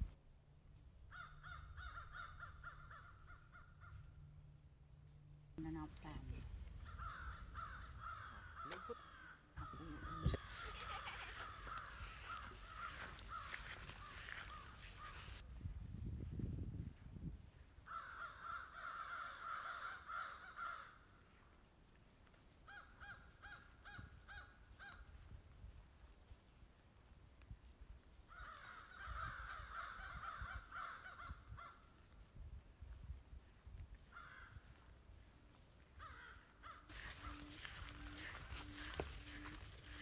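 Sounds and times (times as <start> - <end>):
birds calling harshly: 6.8 - 15.4, 36.0 - 40.0.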